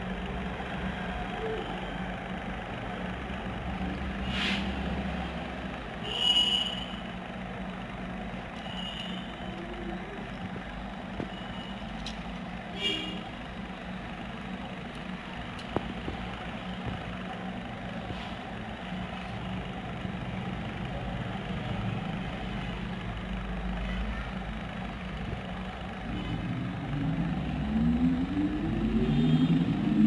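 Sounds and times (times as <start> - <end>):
steady low hum: 0.0 - 30.0
rising whine: 26.0 - 30.0.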